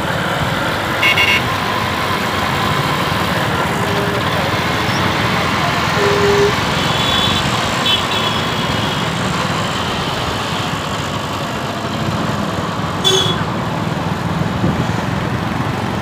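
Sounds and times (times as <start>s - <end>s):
traffic noise: 0.0s - 16.0s
short high beeps: 6.0s - 6.6s.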